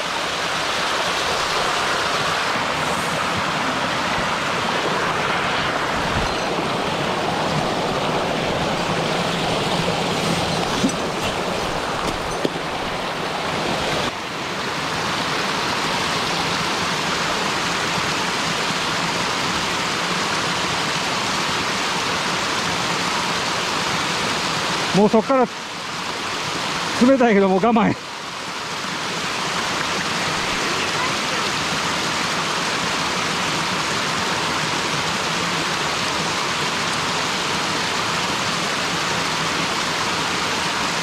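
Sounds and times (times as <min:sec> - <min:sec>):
water rushing over rock: 0:00.0 - 0:41.0.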